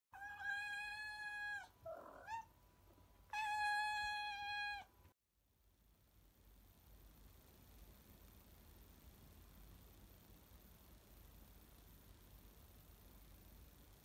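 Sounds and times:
cat chirp: 0:00.2 - 0:02.5
cat meowing: 0:00.2 - 0:02.5, 0:03.3 - 0:04.9.

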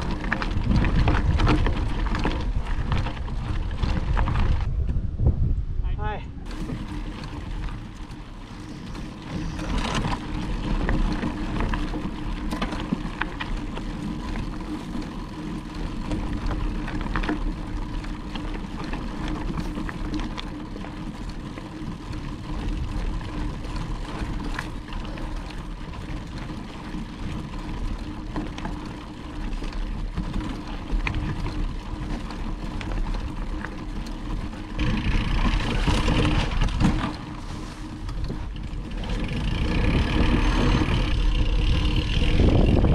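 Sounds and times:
bike clicks and rattles: 0:00.0 - 0:05.2, 0:06.4 - 0:42.9
bike rolling on dirt trail: 0:00.0 - 0:42.9.

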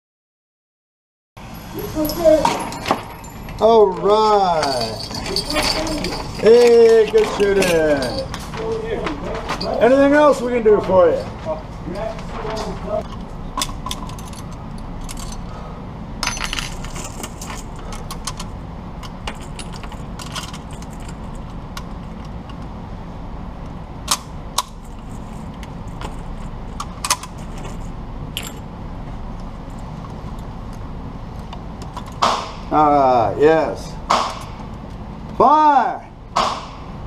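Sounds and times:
ammunition belt jingling: 0:01.7 - 0:09.8, 0:19.1 - 0:22.3.

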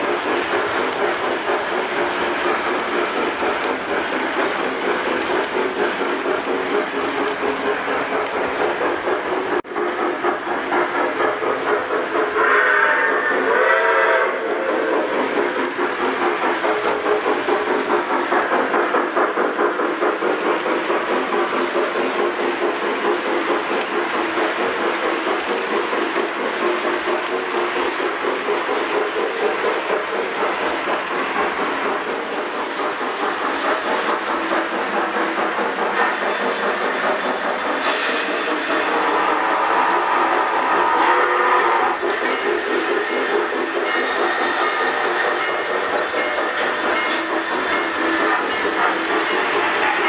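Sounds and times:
model train wheels clattering: 0:00.0 - 0:50.0
short train whistle: 0:12.4 - 0:14.7, 0:40.8 - 0:42.0.

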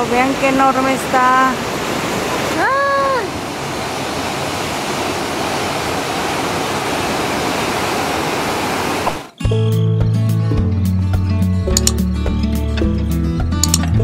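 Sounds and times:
waterfall rushing: 0:00.0 - 0:09.3
music: 0:09.4 - 0:14.0.

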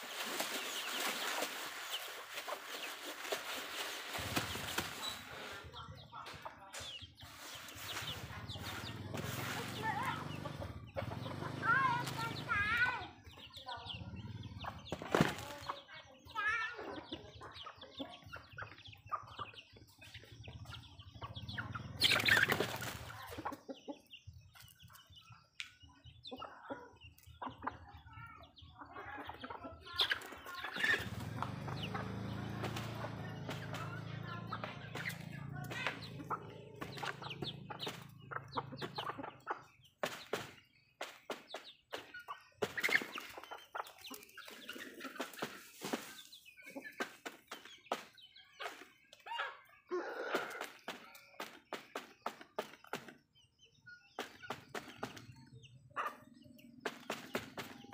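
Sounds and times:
wing flapping: 0:00.0 - 0:05.6, 0:14.9 - 0:15.7, 0:22.0 - 0:23.3
chickens clucking: 0:00.0 - 0:57.9.

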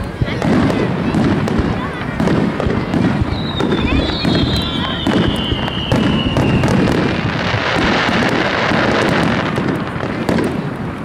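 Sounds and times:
fireworks booming and cracking: 0:00.0 - 0:11.0
fireworks crackling: 0:00.0 - 0:11.0
high falling whistle: 0:03.3 - 0:06.6.

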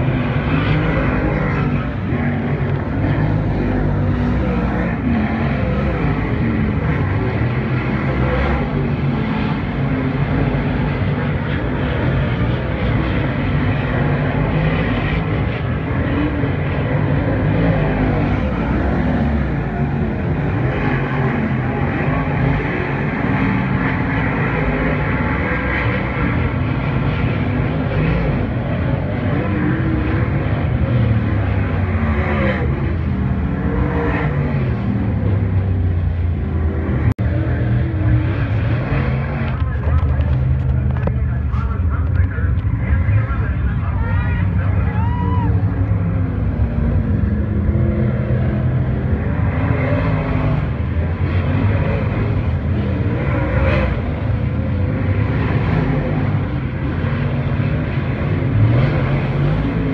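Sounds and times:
race car engines accelerating: 0:00.0 - 0:59.9.

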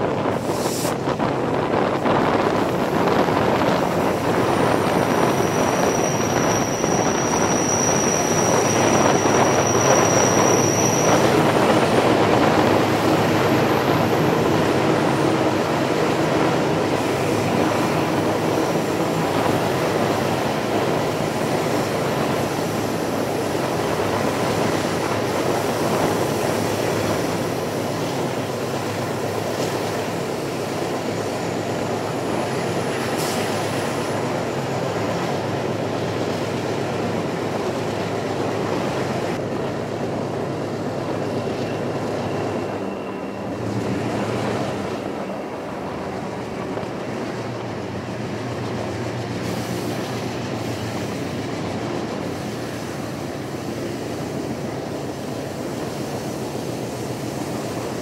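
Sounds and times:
train wheels on rail: 0:00.0 - 0:58.0
faint wheel squeals: 0:05.3 - 0:11.4, 0:41.5 - 0:43.6.

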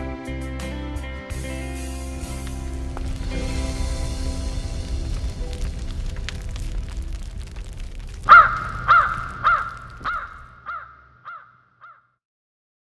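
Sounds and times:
wood fire crackling: 0:01.3 - 0:11.0
low rumble: 0:01.5 - 0:10.7
crow cawing: 0:08.2 - 0:12.1.

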